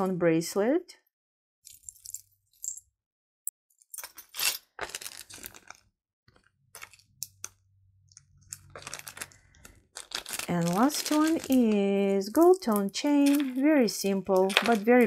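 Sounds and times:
metal bracelet clinking: 1.7 - 2.9.

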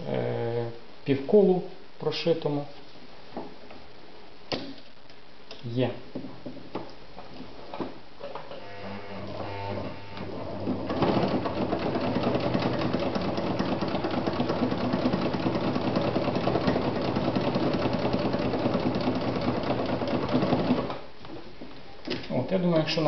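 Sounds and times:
sewing machine stitching: 9.3 - 21.0.

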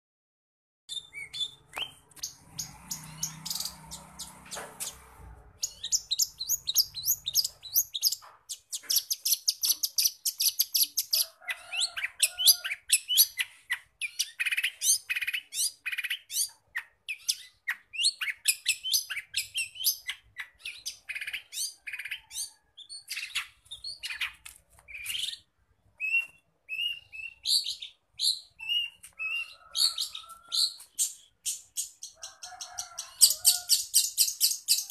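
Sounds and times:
bird singing rapid chatter: 0.9 - 11.2, 12.0 - 34.9.

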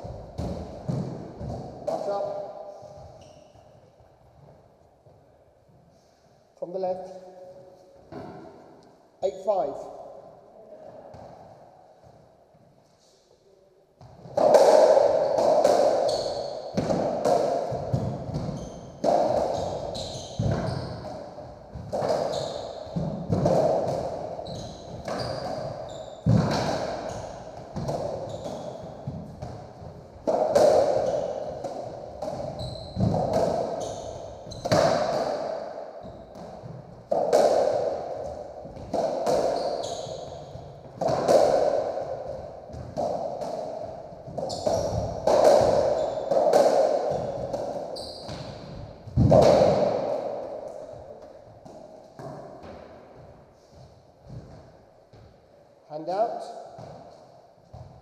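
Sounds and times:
racket hitting ball: 0.0 - 2.1, 14.0 - 53.3.

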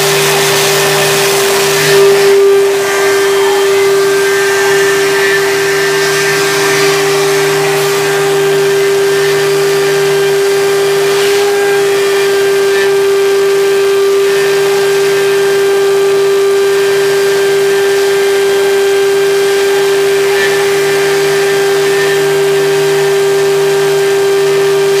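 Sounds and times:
lower machine hum: 0.0 - 17.7
cnc machine spindle whine: 0.0 - 25.0.

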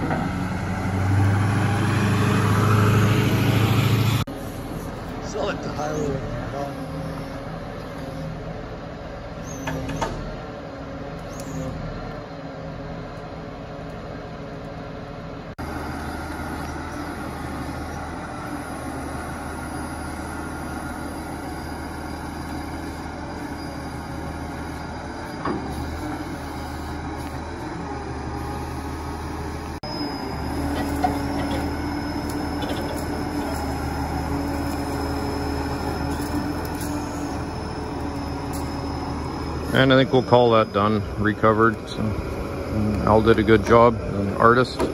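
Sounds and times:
diesel engine drone: 0.0 - 44.9
steady high whine: 13.0 - 44.9.

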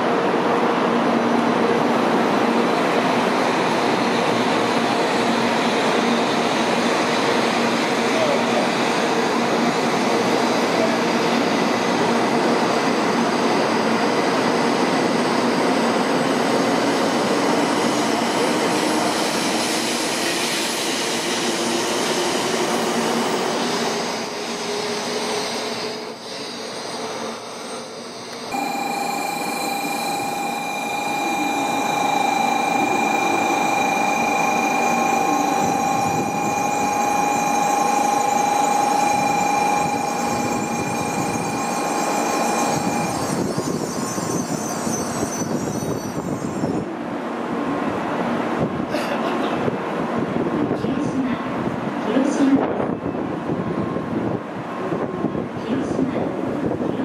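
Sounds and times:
rising train whine: 0.0 - 48.9
train squealing pulling in: 2.6 - 47.4.

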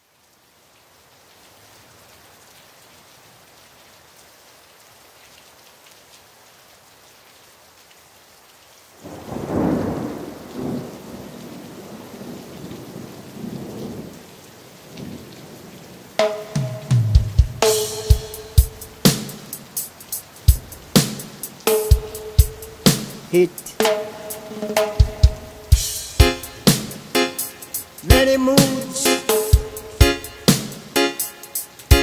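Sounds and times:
steady rain hiss: 0.0 - 32.0
thunder clap and rumbles: 9.1 - 14.1.

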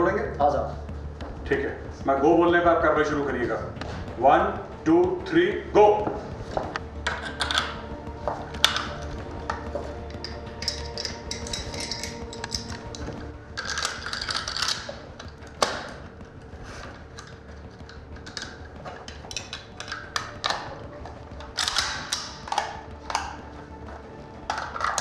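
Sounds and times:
rifle parts clicking and snapping: 6.8 - 7.9, 8.5 - 16.2, 16.9 - 25.0.

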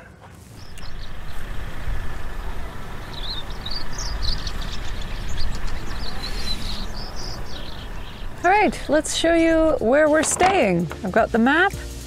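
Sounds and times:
small birds chirping: 0.5 - 10.2
steady low rumble: 0.6 - 10.2.

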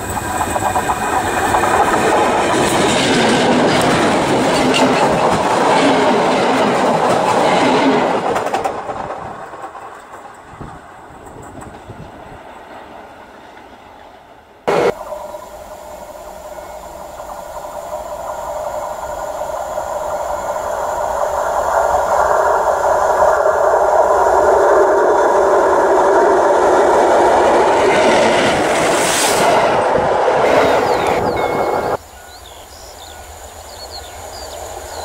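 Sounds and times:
train rumbling over track: 0.0 - 35.0
steam hiss: 14.7 - 35.0.

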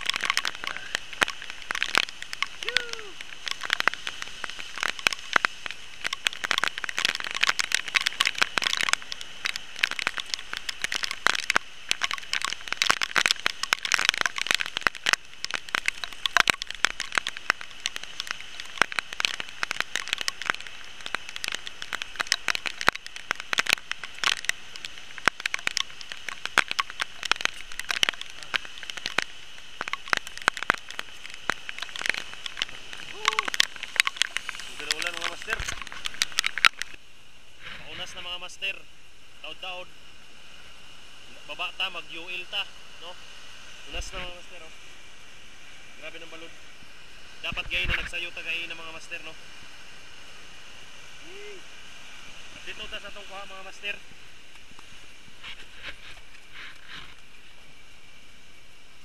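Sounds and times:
leaves brushing microphone: 0.0 - 37.0, 37.6 - 38.7, 43.9 - 44.8, 47.3 - 49.4, 52.2 - 57.8
high-pitched hiss: 0.0 - 59.0.

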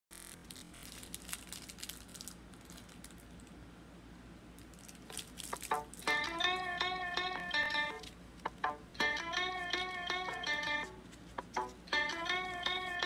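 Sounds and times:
plucked guitar-like music: 5.7 - 13.0.

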